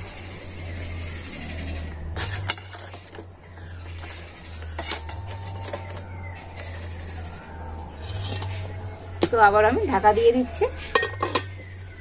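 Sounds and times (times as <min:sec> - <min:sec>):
low hum: 0:00.0 - 0:12.0
steel bowls clinking on metal: 0:04.0 - 0:11.7.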